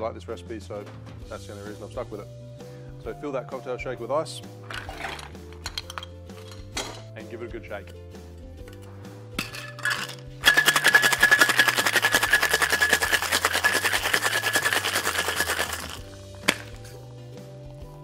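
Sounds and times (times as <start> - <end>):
ice rattling in cocktail shaker: 4.7 - 6.7, 9.4 - 16.9.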